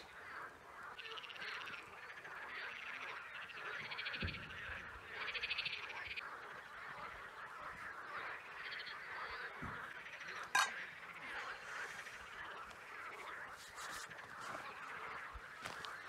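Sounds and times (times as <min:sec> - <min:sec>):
frogs calling: 0:00.0 - 0:16.0
frog rattling trills: 0:00.1 - 0:11.2
metal mug clinking on rock: 0:10.4 - 0:10.8.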